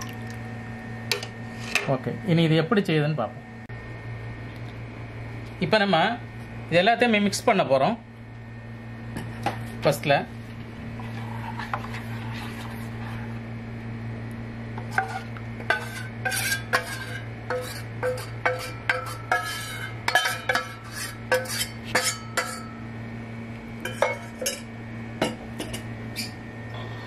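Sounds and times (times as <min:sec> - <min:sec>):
steady low hum: 0:00.0 - 0:27.0
spoon scraping steel bowl: 0:14.9 - 0:22.7.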